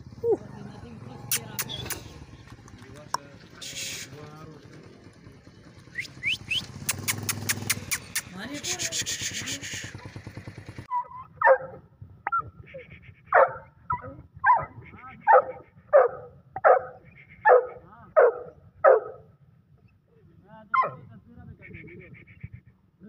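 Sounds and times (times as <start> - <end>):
dog barking: 9.4 - 10.3, 10.9 - 19.3, 20.8 - 21.1.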